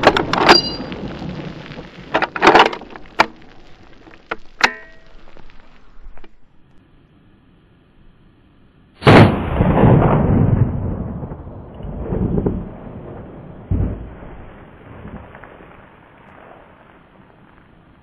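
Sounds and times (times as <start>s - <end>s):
rifle shot with rolling echo: 9.0s - 15.7s.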